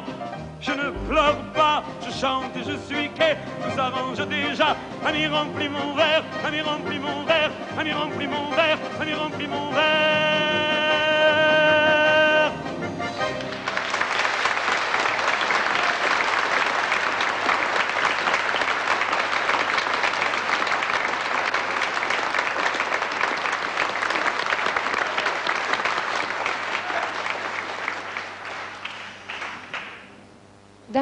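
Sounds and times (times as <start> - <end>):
audience applauding: 13.3 - 30.2.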